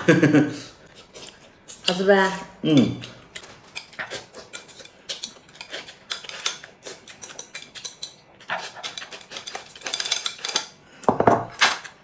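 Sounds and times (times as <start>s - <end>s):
eating noises: 0.6s - 10.1s.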